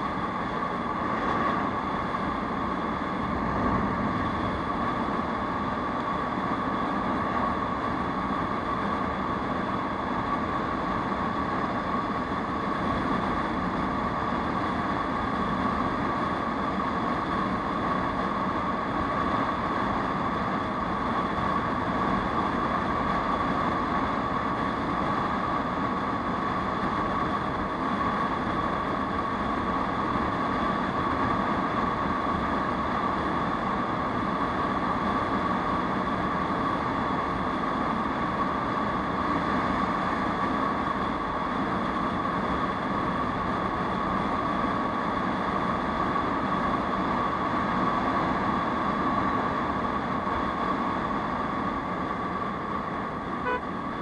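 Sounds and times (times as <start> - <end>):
wind rush over microphone: 0.0 - 14.5
scooter engine droning: 53.4 - 53.6.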